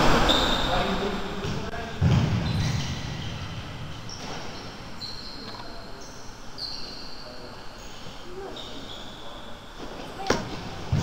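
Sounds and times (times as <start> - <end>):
dull thud: 1.4 - 2.8
shoes squeaking on court floor: 1.4 - 11.0.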